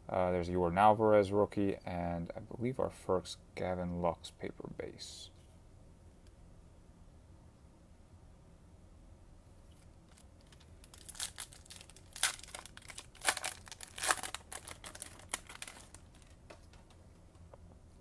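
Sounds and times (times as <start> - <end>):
card pack wrapper tearing and crinkling: 10.1 - 16.7.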